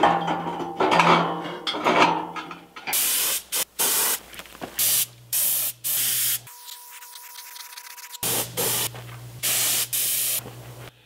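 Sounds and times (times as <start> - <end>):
paint spray gun hissing: 3.0 - 4.2, 4.8 - 6.6, 7.5 - 10.4.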